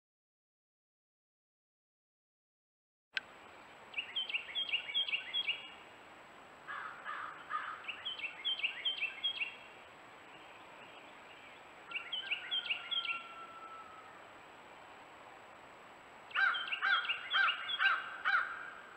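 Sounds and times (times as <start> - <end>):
songbird whistling: 3.9 - 5.8, 7.9 - 9.6, 10.8 - 14.2, 16.3 - 18.1
crow cawing: 6.7 - 7.9, 16.4 - 18.9.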